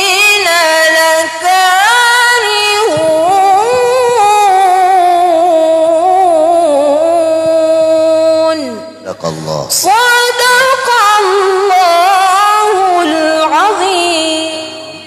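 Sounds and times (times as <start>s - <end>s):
woman chanting through microphone: 9.7s - 15.0s.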